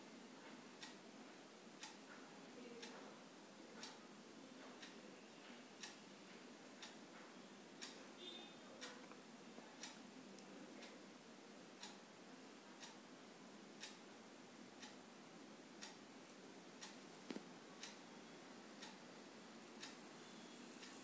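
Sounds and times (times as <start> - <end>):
low room hiss: 0.0 - 21.0
clock ticking: 1.8 - 2.2, 3.8 - 4.1, 4.7 - 5.0, 5.8 - 6.0, 6.8 - 7.2, 7.8 - 8.0, 8.8 - 9.2, 9.8 - 10.0, 11.8 - 12.1, 12.8 - 13.1, 13.8 - 14.1, 14.8 - 15.0, 15.8 - 16.1, 16.8 - 17.0, 17.8 - 18.0, 18.8 - 19.1, 19.8 - 20.0.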